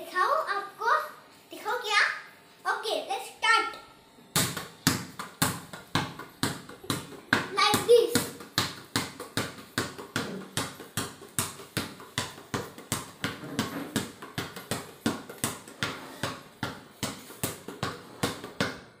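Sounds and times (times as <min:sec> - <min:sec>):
basketball bouncing on tiled floor: 0:04.3 - 0:19.0.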